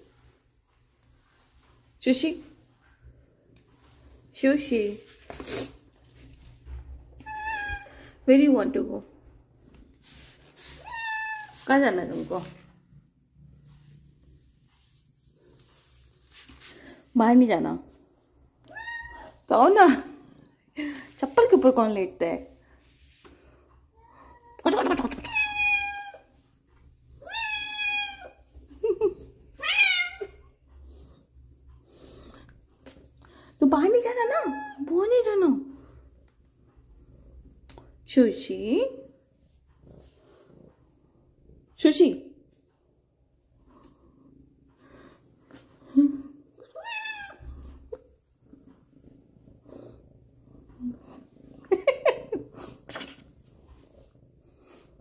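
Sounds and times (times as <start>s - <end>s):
cat meowing: 7.2s - 7.9s, 10.8s - 11.6s, 18.7s - 19.4s, 25.2s - 26.3s, 27.2s - 28.4s, 29.6s - 30.3s, 46.7s - 47.4s
cat purring: 19.3s - 22.6s, 38.9s - 41.7s, 47.3s - 55.0s.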